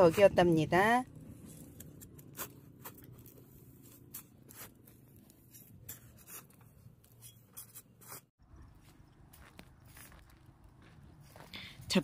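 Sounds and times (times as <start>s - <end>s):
spade digging into dry soil: 1.4s - 8.3s.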